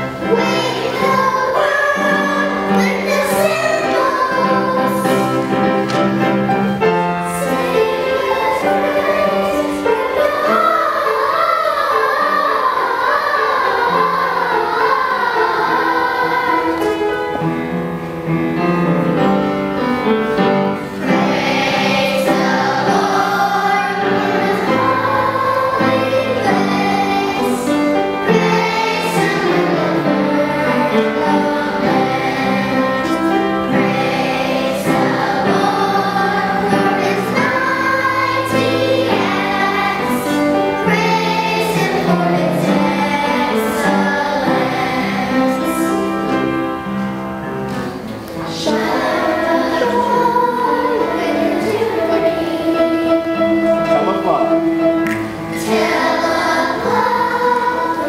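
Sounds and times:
children's choir singing: 0.0s - 58.0s
musical accompaniment: 0.0s - 58.0s.

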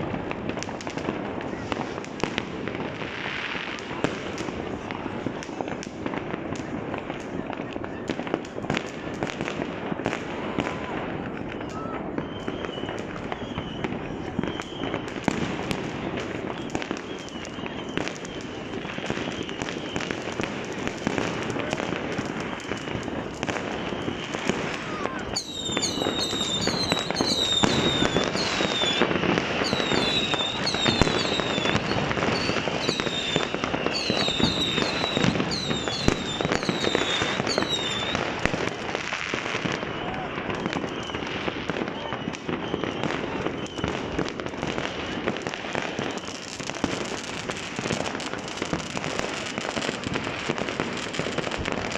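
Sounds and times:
fireworks bangs and crackles: 0.0s - 51.9s
people's voices: 1.0s - 42.4s.

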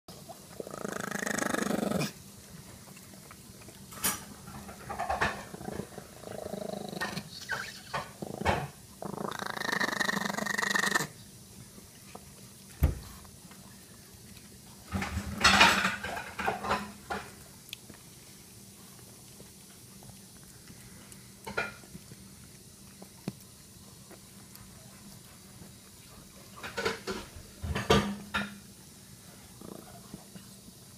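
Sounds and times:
small dog growling: 0.5s - 2.2s, 5.0s - 11.2s, 29.4s - 30.4s.

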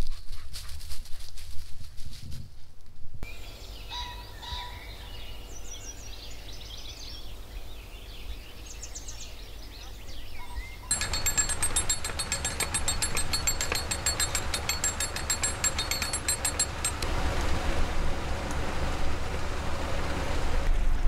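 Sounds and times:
ratchet pawl clicking: 10.9s - 17.1s
water rushing: 16.0s - 21.0s.

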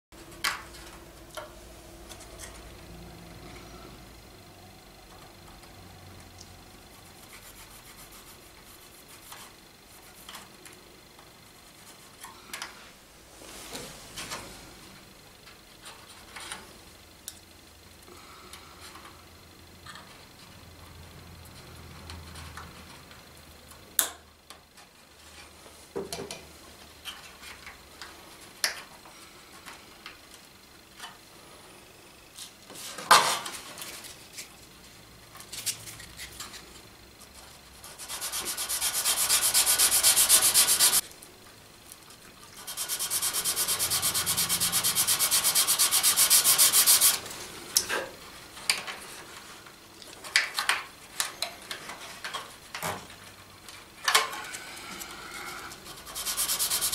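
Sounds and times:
fast rasping sanding: 7.2s - 10.3s, 37.8s - 41.0s, 42.6s - 47.2s, 55.9s - 56.9s.

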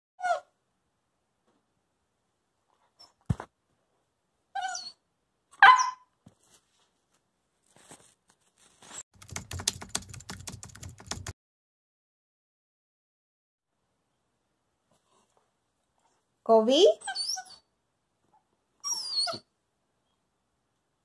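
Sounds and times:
puppy yipping and barking: 4.6s - 5.0s, 5.6s - 6.1s, 17.0s - 17.7s, 18.8s - 19.5s.

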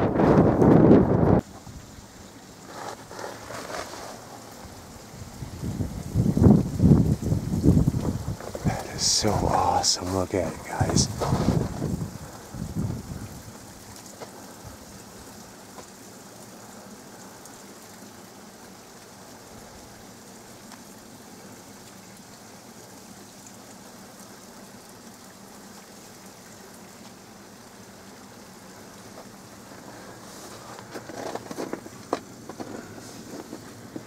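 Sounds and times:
river water rushing: 8.6s - 11.7s.

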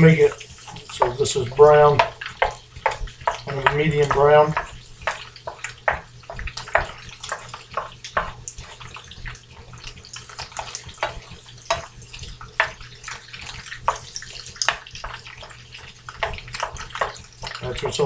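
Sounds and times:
wooden spoon scraping a pan: 0.0s - 17.7s
tofu sizzling in a frying pan: 0.0s - 17.8s
spoon knocking against pan: 1.8s - 8.4s, 10.4s - 11.9s, 12.6s - 12.8s.

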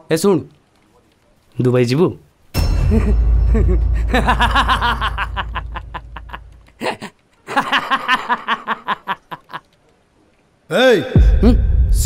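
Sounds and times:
man laughing heartily: 2.8s - 9.6s.

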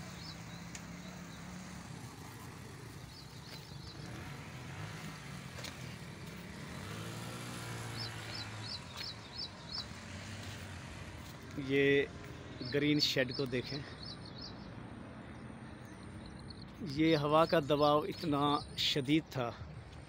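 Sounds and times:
vehicle passing: 0.0s - 17.6s
road traffic engine noise: 0.0s - 20.0s
small bird chirping: 7.5s - 11.6s.

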